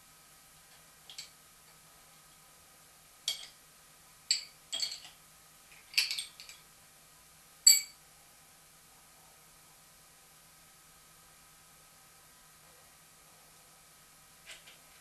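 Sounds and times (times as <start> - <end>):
spanner clinking on iron table: 3.3 - 3.6, 4.3 - 5.1, 7.7 - 8.0.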